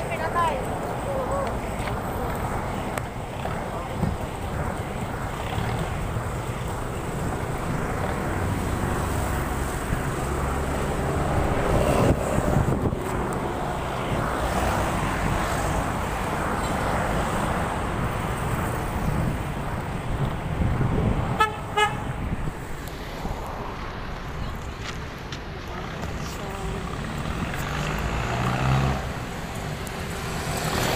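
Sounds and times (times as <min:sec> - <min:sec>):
cars and trucks passing: 0:00.0 - 0:30.9
vehicle horn toot: 0:21.4 - 0:22.0.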